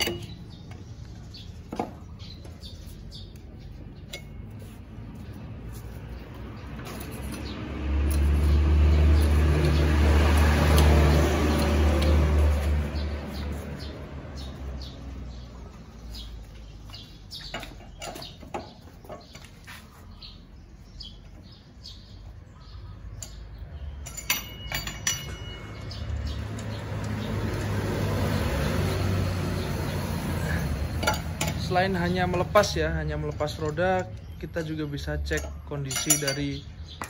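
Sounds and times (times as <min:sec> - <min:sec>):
sharp ringing metal clinks: 0:23.2 - 0:26.8, 0:33.5 - 0:36.7
lug wrench clicking on wheel nuts: 0:23.2 - 0:28.1, 0:31.0 - 0:36.6.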